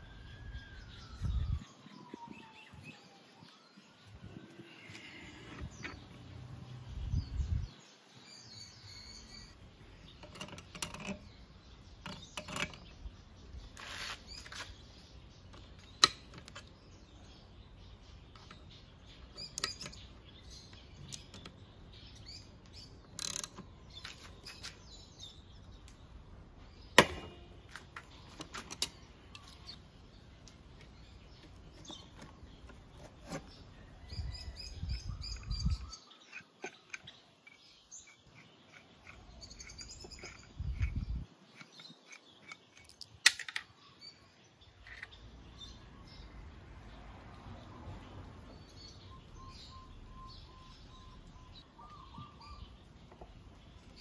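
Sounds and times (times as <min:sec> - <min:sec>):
birds chirping: 0:00.0 - 0:54.0
sharp metallic knocks: 0:27.0 - 0:27.6.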